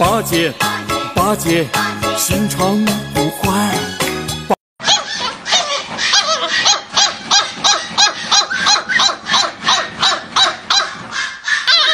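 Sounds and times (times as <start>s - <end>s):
puppy yapping: 4.8s - 11.9s.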